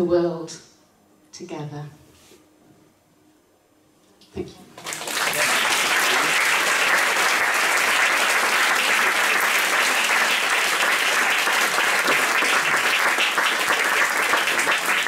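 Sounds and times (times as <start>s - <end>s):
audience applauding: 4.8s - 15.0s.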